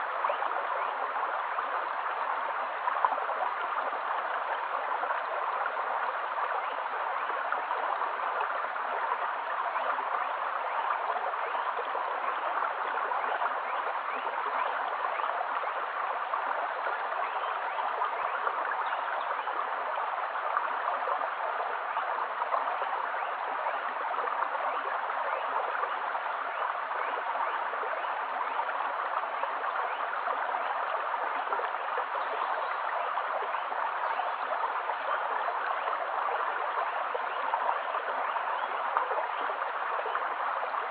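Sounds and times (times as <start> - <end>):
stream babbling over stones: 0.0 - 40.9.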